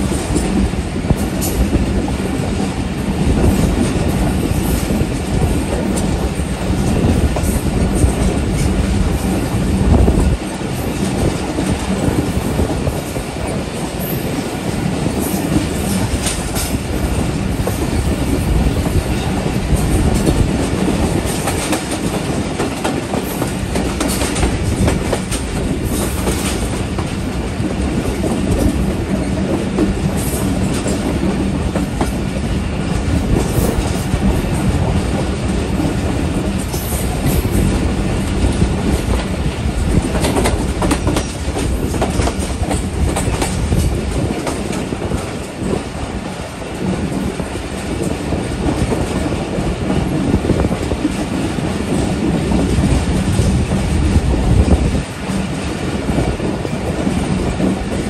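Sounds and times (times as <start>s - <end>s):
train wheels rumbling on rails: 0.0s - 58.0s
wheels clicking over rail joints: 15.0s - 58.0s.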